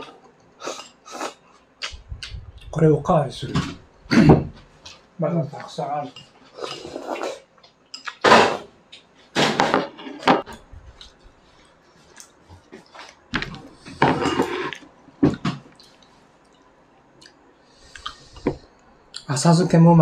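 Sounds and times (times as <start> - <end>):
bowls and plates clinking: 14.0 - 14.8.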